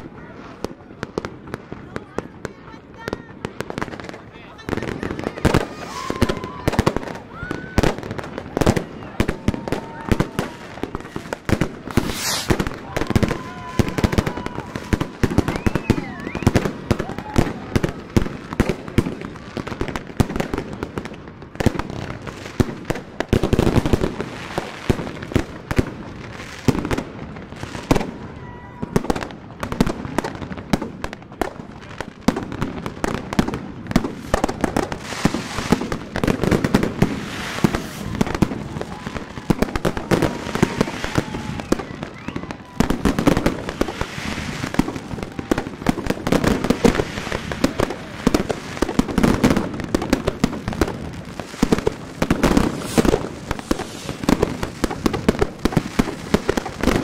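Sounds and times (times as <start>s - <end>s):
fireworks bangs and crackles: 0.0s - 57.0s.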